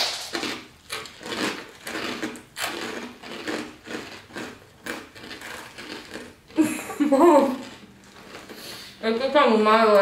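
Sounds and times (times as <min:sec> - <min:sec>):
crunchy cereal being chewed: 0:00.0 - 0:06.7, 0:07.4 - 0:09.0.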